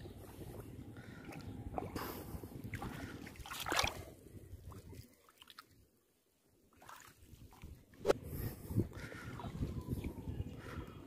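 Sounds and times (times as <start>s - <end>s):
water sloshing and splashing: 2.6s - 5.9s, 6.7s - 7.8s.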